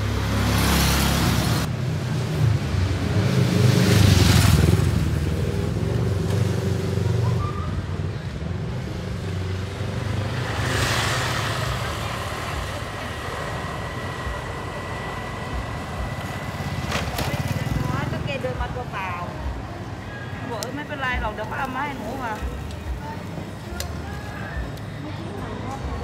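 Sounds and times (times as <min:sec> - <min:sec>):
vehicle engine passing by: 0:00.0 - 0:01.7, 0:08.9 - 0:18.5
street traffic noise: 0:00.0 - 0:26.0.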